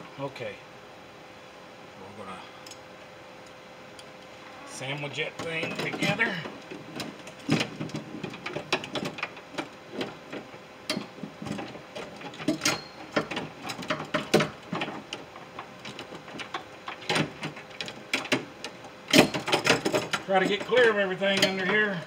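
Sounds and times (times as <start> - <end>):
metal parts clanking and rattling: 5.4 - 22.0.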